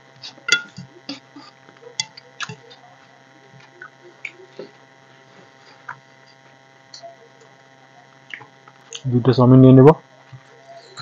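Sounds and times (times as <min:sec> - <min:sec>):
electrical hum: 0:00.0 - 0:11.0
fingers mixing rice on plates: 0:00.1 - 0:06.6.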